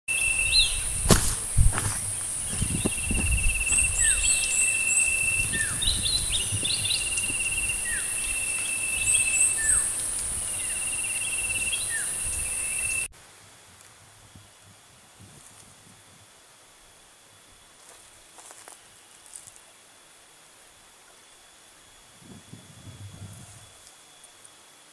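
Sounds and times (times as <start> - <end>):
birds chirping: 0.1 - 13.1
high-pitched insect drone: 0.1 - 13.1
pulsing trill: 2.3 - 13.1
bird whistles: 2.7 - 13.1.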